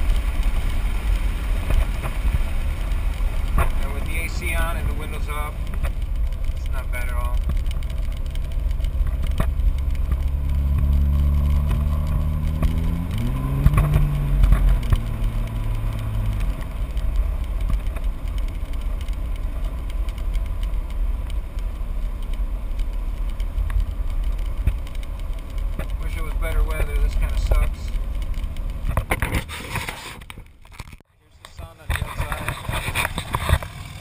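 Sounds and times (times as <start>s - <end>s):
diesel truck exhaust rumble: 0.0s - 29.4s
road noise: 0.0s - 34.0s.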